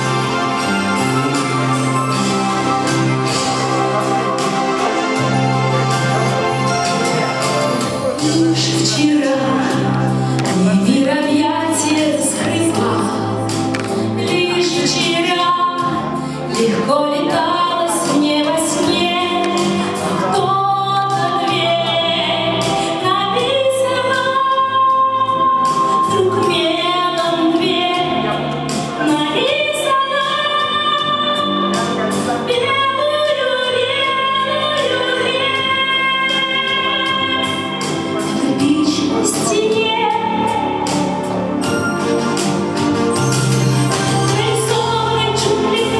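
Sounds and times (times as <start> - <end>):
backing music with steady beat: 0.0 - 45.9
woman singing into microphone: 8.2 - 41.4, 44.0 - 45.9.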